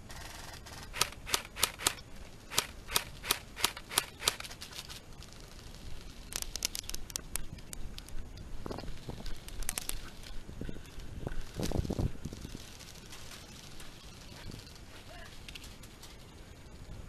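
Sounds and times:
rapid clicks: 0:00.1 - 0:05.0
airsoft gun shots: 0:00.9 - 0:04.5.

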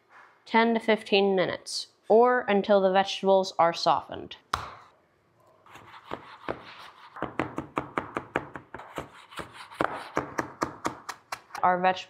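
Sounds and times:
knife chopping on plastic board: 0:05.7 - 0:11.6.

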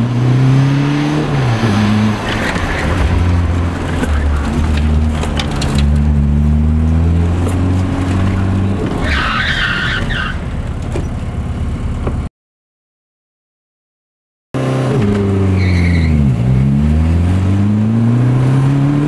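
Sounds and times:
car engine running hard: 0:00.0 - 0:09.2
tires squealing: 0:01.1 - 0:11.2, 0:15.4 - 0:16.8.

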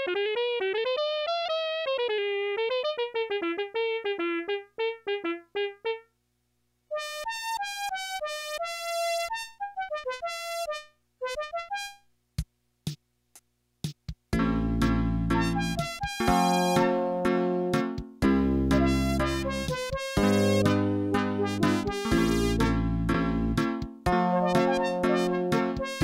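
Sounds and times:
loud full keyboard sound with bass: 0:00.0 - 0:06.1, 0:06.9 - 0:12.0, 0:14.3 - 0:26.0
bright keyboard run of notes: 0:14.4 - 0:26.0
keyboard electric piano melody: 0:14.4 - 0:26.0.

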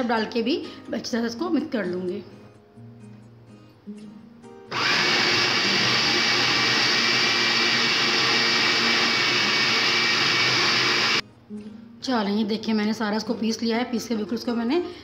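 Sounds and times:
food processor grinding: 0:04.7 - 0:11.2.

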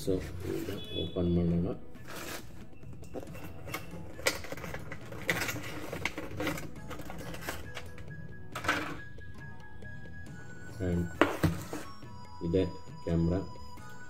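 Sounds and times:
plastic packaging crinkling and clicking: 0:03.1 - 0:08.0.

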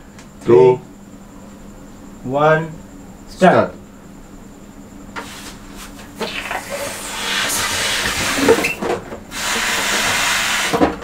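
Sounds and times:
people blowing into balloons: 0:06.2 - 0:08.6, 0:09.3 - 0:10.8.

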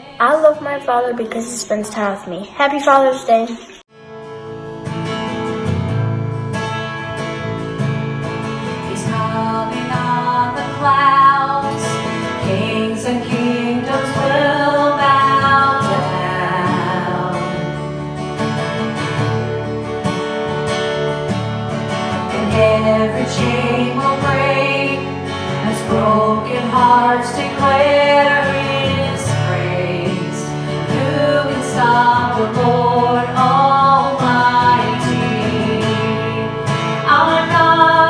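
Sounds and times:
strummed acoustic guitar: 0:03.9 - 0:38.0
woman singing: 0:08.8 - 0:17.8, 0:22.3 - 0:38.0.

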